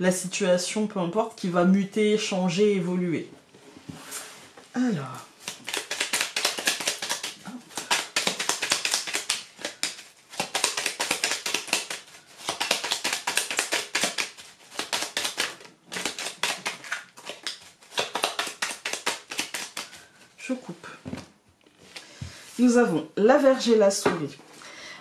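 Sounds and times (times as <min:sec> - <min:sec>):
cards being shuffled: 0:05.4 - 0:20.2.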